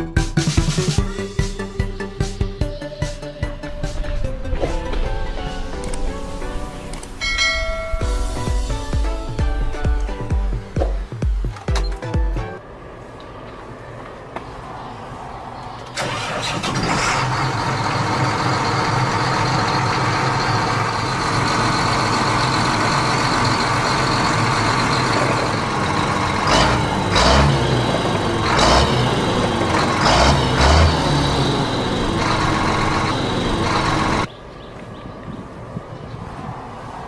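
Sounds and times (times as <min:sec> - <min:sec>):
knocks and low thuds: 0:09.0 - 0:12.3
motor running: 0:26.4 - 0:34.3.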